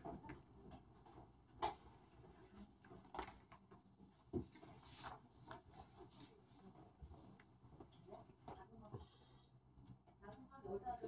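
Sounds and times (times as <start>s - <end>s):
soft rustles: 0.9s - 9.2s.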